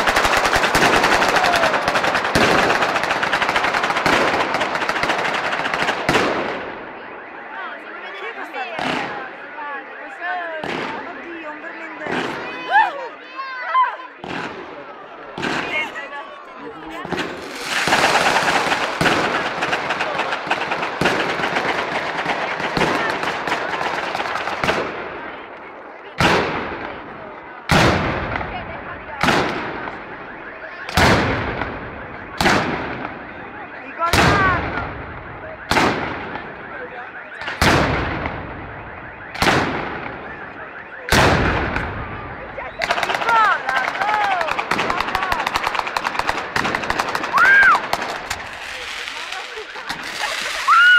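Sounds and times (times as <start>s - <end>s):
heavy firework bangs: 0.0s - 6.9s, 14.2s - 16.0s, 17.0s - 25.4s, 26.2s - 33.4s, 34.1s - 36.6s, 37.4s - 40.4s, 41.0s - 50.9s
firecrackers crackling: 0.0s - 7.6s, 8.2s - 13.0s, 14.1s - 50.9s.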